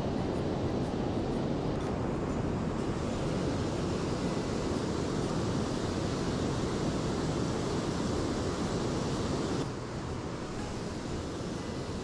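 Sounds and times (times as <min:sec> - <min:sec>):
river water rushing over weir: 0:00.0 - 0:12.0.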